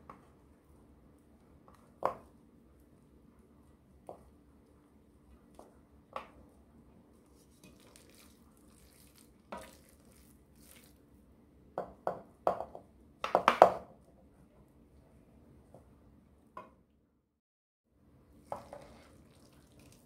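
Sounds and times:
spatula scraping a pan: 18.5s - 19.3s.

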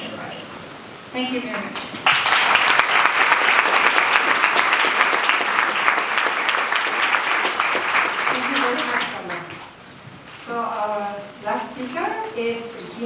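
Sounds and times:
audience applauding: 1.5s - 9.8s.

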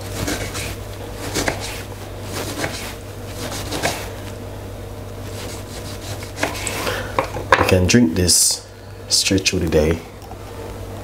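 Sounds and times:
knife slicing on wooden board: 0.0s - 4.1s, 5.3s - 6.8s.

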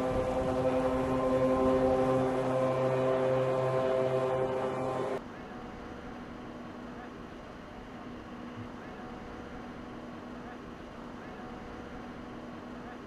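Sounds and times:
ship's horn deep note: 0.0s - 5.2s
quiet background hum: 0.0s - 13.0s.

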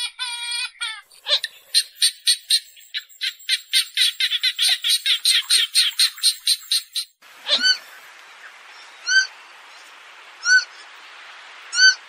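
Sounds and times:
bird sharp clucking notes: 1.1s - 8.1s
faint hiss: 7.2s - 12.0s.

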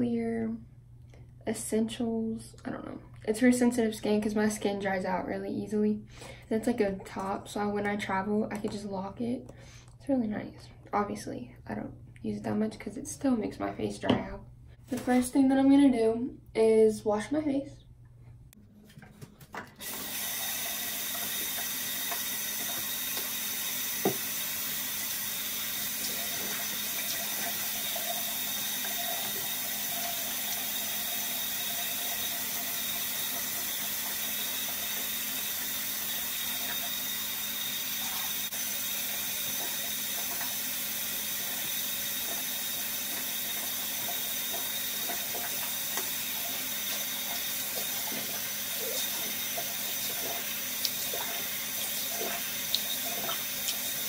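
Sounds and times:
faucet running into sink: 19.8s - 54.0s.

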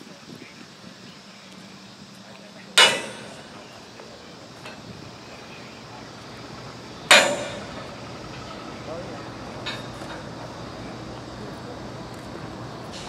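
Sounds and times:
hammer clanging on steel: 2.8s - 3.7s, 7.1s - 8.0s.

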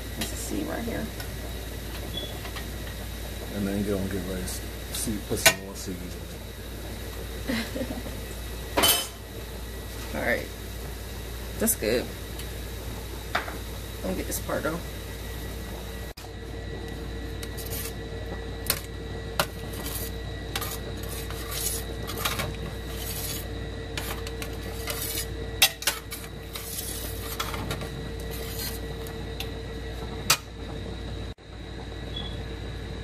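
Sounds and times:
steady hum: 0.0s - 33.0s
metal spatula scraping a steel pan: 19.7s - 23.4s, 24.0s - 27.6s, 28.3s - 28.8s.

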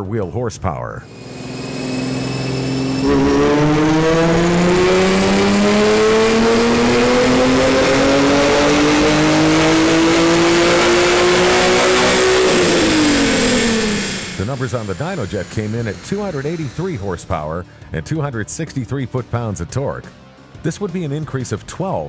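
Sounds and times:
car engine revving on dyno: 1.1s - 17.3s.

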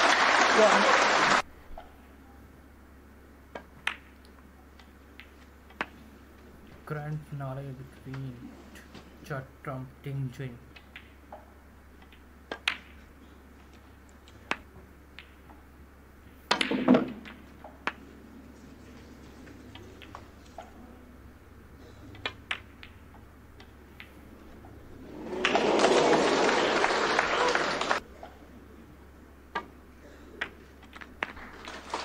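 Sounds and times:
audience applause: 0.0s - 1.4s, 25.0s - 28.0s, 31.3s - 32.0s
snooker balls clicking: 3.5s - 7.2s, 10.6s - 21.1s, 22.0s - 26.3s, 29.5s - 29.8s, 30.4s - 32.0s.

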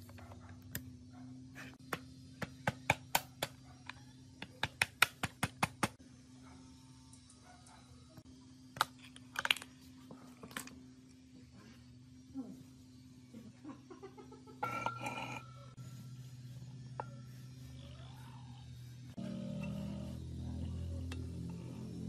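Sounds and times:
steady low hum: 0.0s - 22.0s
hammer tapping metal drift: 16.7s - 18.4s, 19.2s - 22.0s.

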